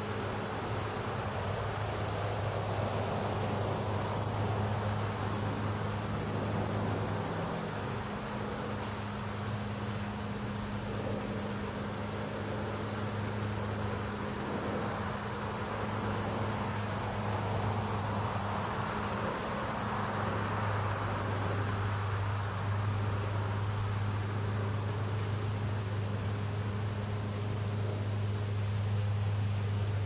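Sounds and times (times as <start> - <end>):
road noise: 0.0 - 30.0
steady low hum: 0.0 - 30.0.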